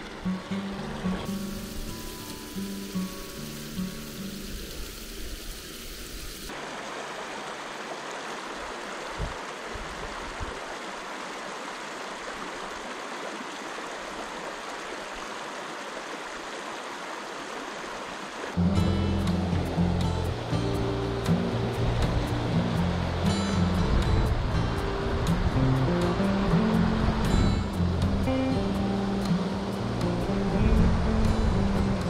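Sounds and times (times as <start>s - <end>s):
river water rushing: 0.0s - 32.0s
background music: 18.6s - 32.0s.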